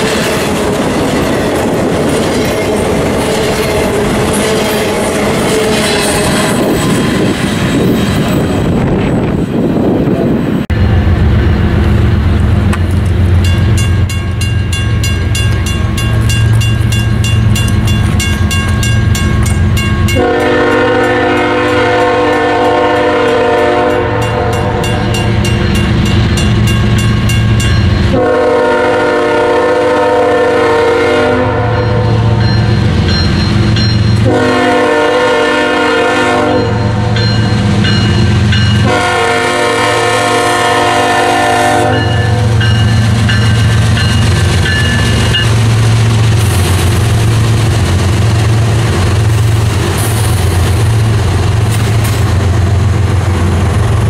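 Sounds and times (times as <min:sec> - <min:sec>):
diesel locomotive rumble: 0:00.0 - 0:54.0
train cars rolling: 0:00.0 - 0:54.0
crossing bell ringing: 0:13.0 - 0:28.6, 0:31.6 - 0:34.7, 0:36.4 - 0:39.3, 0:41.8 - 0:45.7
locomotive air horn blasts: 0:20.1 - 0:25.0, 0:28.1 - 0:32.1, 0:34.2 - 0:37.1, 0:38.8 - 0:42.6.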